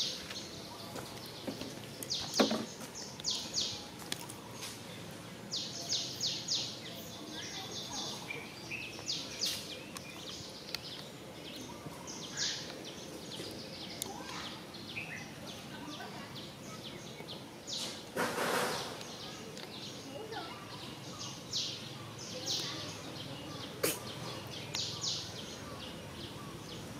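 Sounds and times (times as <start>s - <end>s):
noisy rustle: 8.1s - 20.2s.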